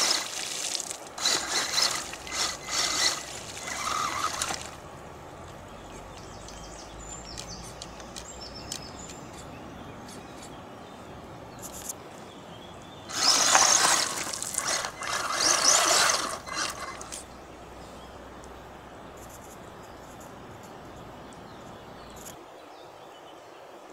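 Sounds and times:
splashing and churning water: 0:00.0 - 0:05.0, 0:13.1 - 0:17.3
stream trickling: 0:00.0 - 0:23.0.

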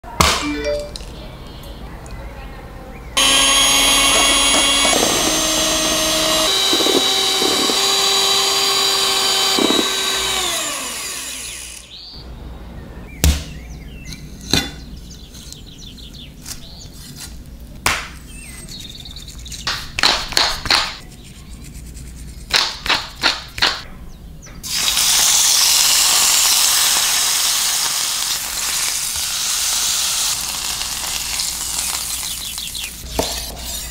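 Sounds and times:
kitchen appliance motor running: 0:03.2 - 0:12.0
chicken sizzling in frying pan: 0:24.7 - 0:32.9.

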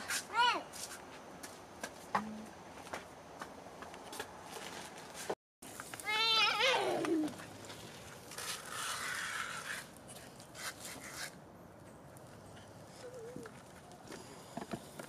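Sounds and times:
child squealing: 0:06.1 - 0:07.3.

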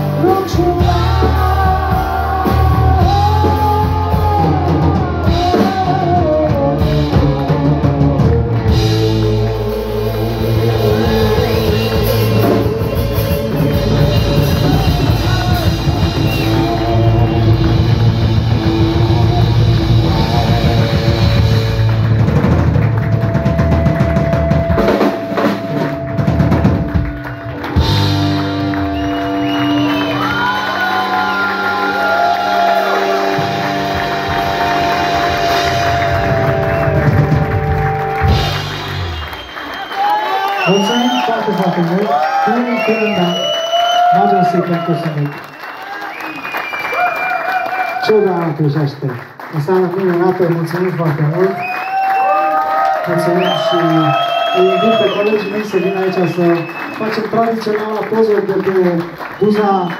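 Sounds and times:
person singing: 0:00.0 - 0:21.9
electric guitar: 0:00.0 - 0:40.0
drum kit: 0:00.0 - 0:41.6.

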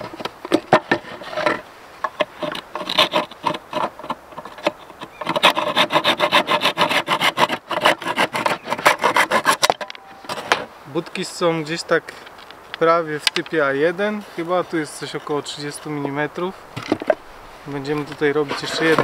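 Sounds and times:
hand saw cutting wood: 0:02.2 - 0:10.6, 0:18.4 - 0:19.0.

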